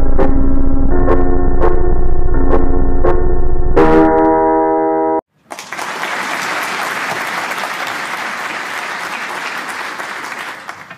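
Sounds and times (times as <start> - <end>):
synth chord: 0.0 - 5.2
crowd applauding: 5.4 - 10.9.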